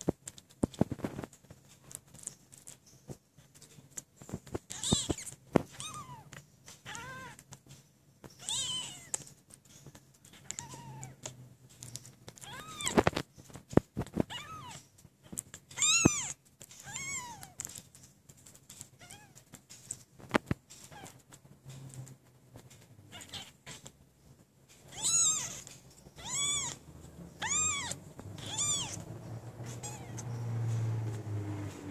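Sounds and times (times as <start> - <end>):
kitten mewing: 24.9 - 30.4.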